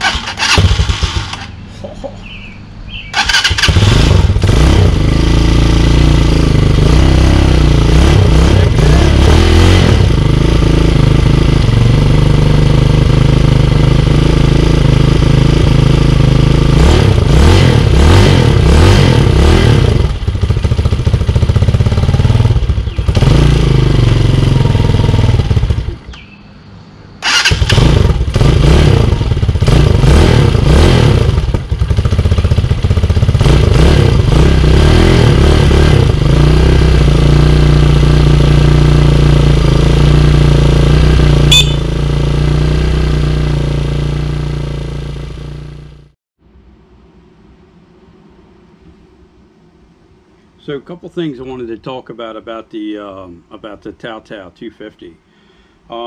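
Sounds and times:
dirt bike engine revving: 0:00.0 - 0:01.6, 0:03.1 - 0:26.3, 0:27.2 - 0:46.2
short sharp chirp: 0:01.7 - 0:03.2, 0:41.5 - 0:42.0.

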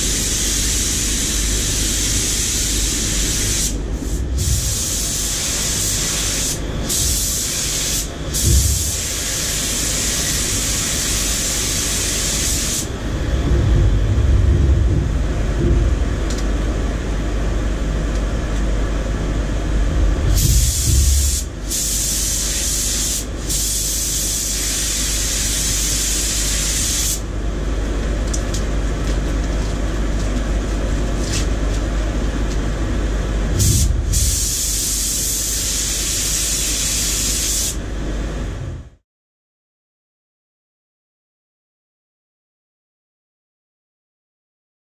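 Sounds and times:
spray gun hissing: 0:00.0 - 0:12.9, 0:20.3 - 0:27.3, 0:33.6 - 0:37.8
low rumble: 0:13.0 - 0:21.5.

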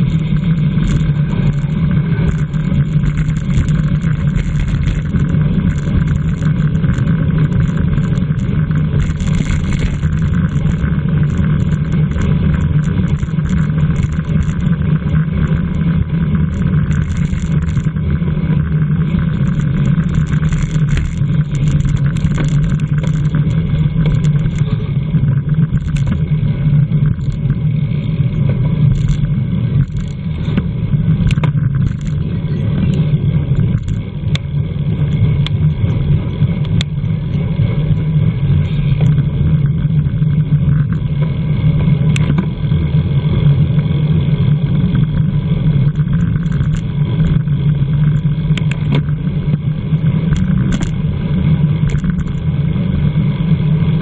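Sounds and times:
small ticks and rattles: 0:00.0 - 0:26.3, 0:26.9 - 0:28.1, 0:28.8 - 0:32.3, 0:32.9 - 0:36.0, 0:45.8 - 0:49.2, 0:49.9 - 0:51.0, 0:51.8 - 0:52.5
tyre and road noise: 0:00.0 - 0:54.0
wind rushing over microphone: 0:00.0 - 0:54.0.

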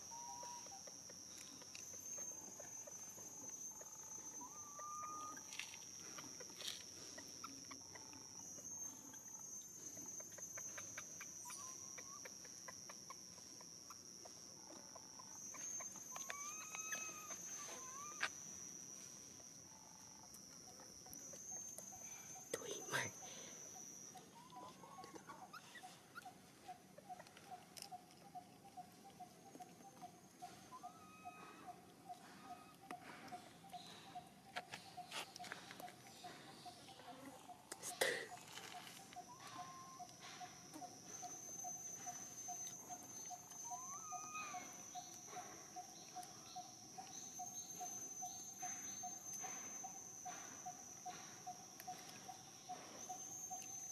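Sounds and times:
insect buzz: 0:00.0 - 0:53.9
insect chirping: 0:00.0 - 0:53.9
short rising insect call: 0:00.0 - 0:53.9
macaque whimpering squeaks: 0:15.5 - 0:18.4, 0:30.4 - 0:31.7, 0:43.3 - 0:44.8.

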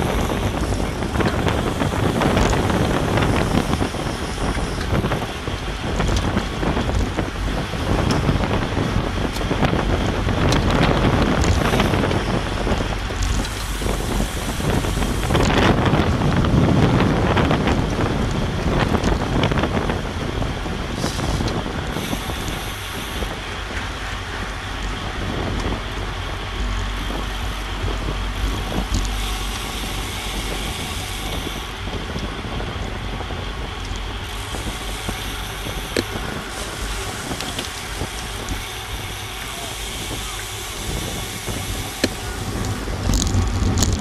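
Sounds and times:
road and tyre rumble: 0:00.0 - 0:44.0
wind rushing over microphone: 0:00.0 - 0:44.0.

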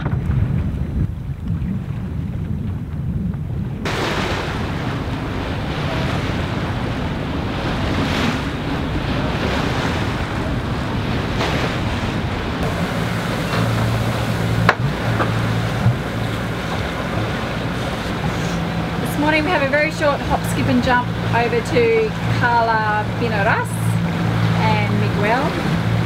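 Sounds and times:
water rushing along hull: 0:00.0 - 0:26.0
wind buffeting microphone: 0:00.0 - 0:26.0
low steady hum: 0:03.8 - 0:26.0.

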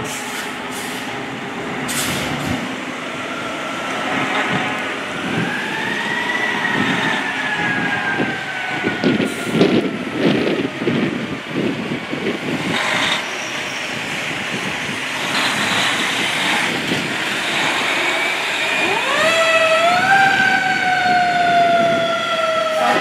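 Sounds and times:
fire truck engine running: 0:00.0 - 0:23.0
siren winding up and down: 0:18.2 - 0:23.0.

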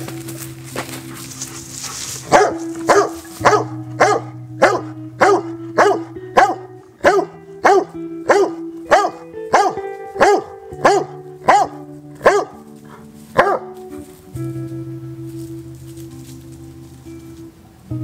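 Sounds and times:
background music: 0:00.0 - 0:18.0
dog barking: 0:01.9 - 0:13.8.

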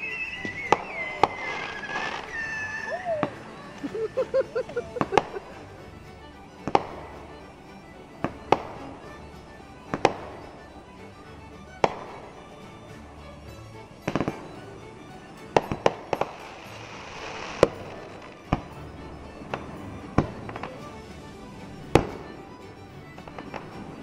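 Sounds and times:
firework hissing crackle: 0:00.0 - 0:05.7, 0:15.3 - 0:18.9
firework bangs: 0:00.0 - 0:05.8, 0:08.2 - 0:08.9, 0:09.8 - 0:10.8, 0:11.8 - 0:12.4, 0:14.0 - 0:14.6, 0:15.6 - 0:22.4.

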